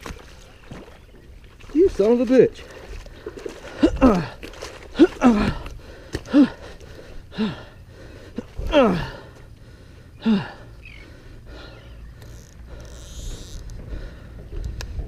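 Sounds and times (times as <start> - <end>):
man gasping and groaning: 3.6 - 11.8.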